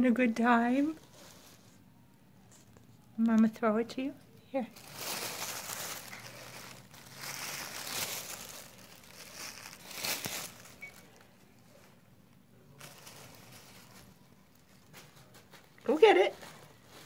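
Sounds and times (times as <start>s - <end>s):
tissue paper crinkling: 0.8s - 1.9s, 4.6s - 12.0s, 12.6s - 17.0s.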